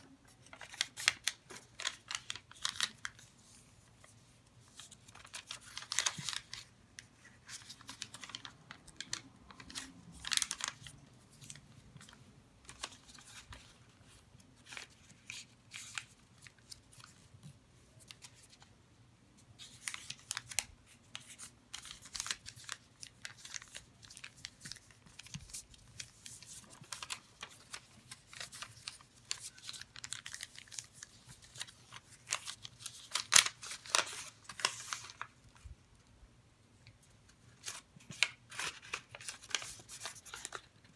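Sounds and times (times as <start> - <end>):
paper rustling and crinkling: 0.2 - 18.7, 19.6 - 35.8, 37.0 - 40.9.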